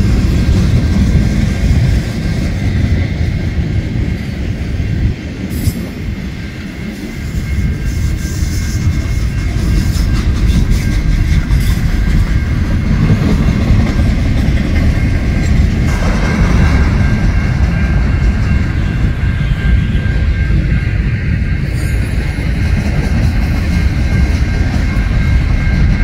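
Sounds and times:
train wheels rumbling on rails: 0.0s - 26.0s.

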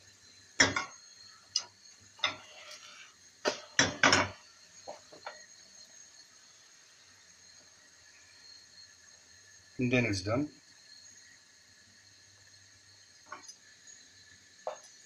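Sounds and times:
frying pan knocking on burner grate: 0.6s - 1.0s, 3.4s - 5.0s.

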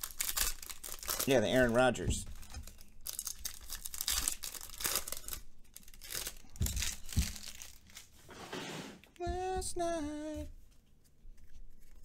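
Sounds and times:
foil wrapper tearing and crinkling: 0.0s - 8.2s.

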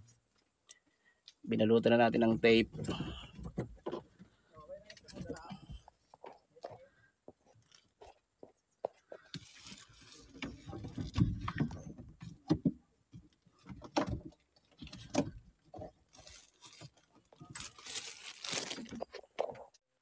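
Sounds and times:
rustling and scraping of plastic conduit: 9.1s - 19.8s.

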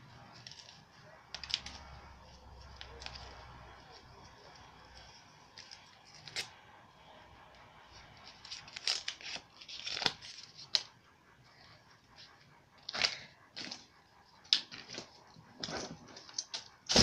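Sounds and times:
wrapper crinkling and tearing: 0.3s - 4.6s, 8.2s - 10.9s.

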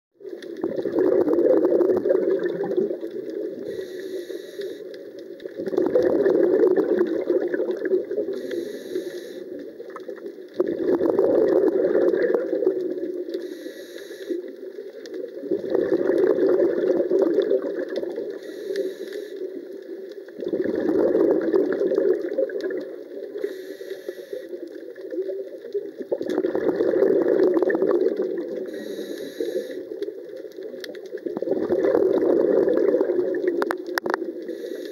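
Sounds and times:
burbling exhaled bubbles: 0.2s - 3.8s, 5.4s - 8.6s, 9.4s - 13.4s, 14.4s - 18.4s, 19.5s - 23.5s, 24.4s - 29.0s, 29.8s - 34.9s
regulator hiss: 3.7s - 4.9s, 8.3s - 9.6s, 13.4s - 14.5s, 18.4s - 19.5s, 23.4s - 24.6s, 28.7s - 29.9s, 34.4s - 34.9s.

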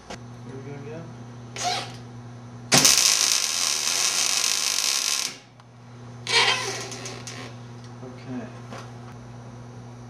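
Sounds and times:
low welder hum: 0.0s - 10.0s
welder arc crackling: 2.7s - 7.6s.

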